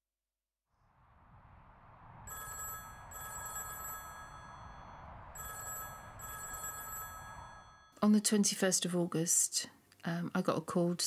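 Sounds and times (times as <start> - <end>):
low background rumble: 0.9 - 7.9
telephone ringing double ring: 2.3 - 8.0.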